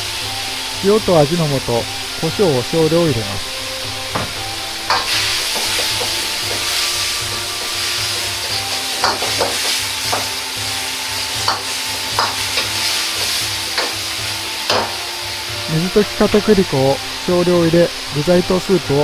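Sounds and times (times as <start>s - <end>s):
food sizzling in a wok: 0.0s - 19.0s
ladle knocking against wok: 4.1s - 10.4s, 11.4s - 14.1s, 14.7s - 15.0s.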